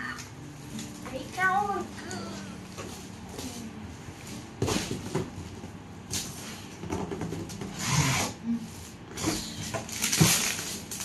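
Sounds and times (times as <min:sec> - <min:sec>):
foil gift wrap crinkling: 0:08.8 - 0:11.0.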